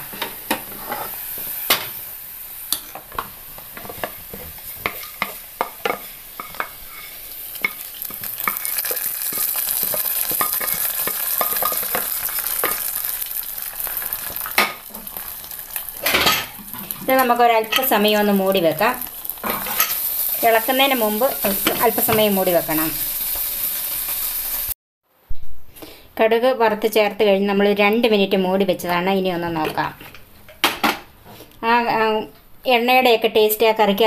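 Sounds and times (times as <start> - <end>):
hot oil sizzling: 0.0 - 24.8
wooden spatula scraping pan: 0.1 - 1.5, 3.7 - 12.1.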